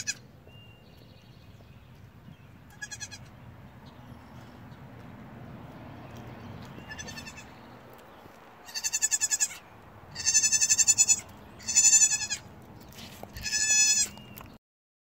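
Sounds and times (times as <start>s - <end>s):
goat kid bleating: 0.0s - 0.2s, 2.7s - 3.3s, 6.8s - 7.6s, 8.6s - 12.5s, 13.2s - 14.2s.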